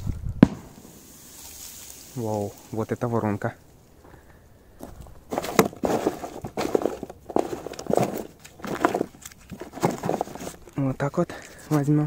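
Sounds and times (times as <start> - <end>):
firecrackers clattering in cardboard box: 4.8 - 10.8.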